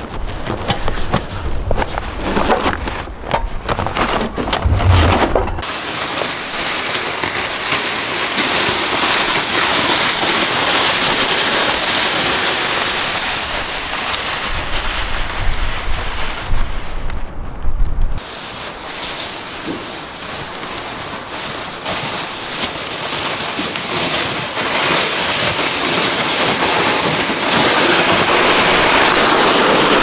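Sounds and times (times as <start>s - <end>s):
sled dragged across snow: 0.0s - 17.3s, 18.2s - 30.0s
wind on microphone: 3.1s - 5.6s, 14.4s - 18.2s.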